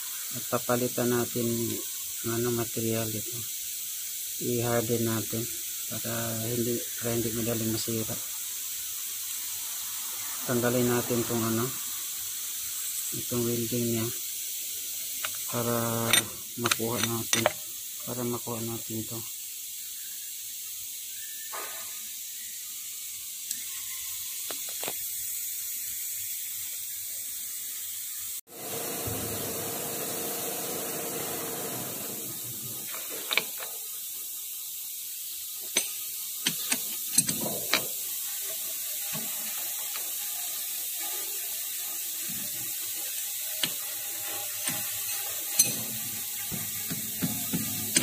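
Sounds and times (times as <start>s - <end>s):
steady hiss: 0.0s - 48.0s
metallic clicks and knocks: 15.2s - 17.6s, 33.1s - 33.8s, 35.7s - 38.0s, 45.5s - 48.0s.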